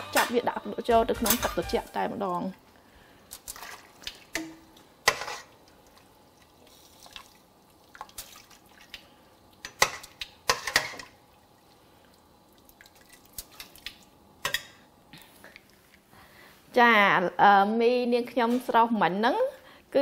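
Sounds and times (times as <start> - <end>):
water dripping: 5.5 - 10.6, 11.2 - 14.6
water splashing: 5.8 - 9.1.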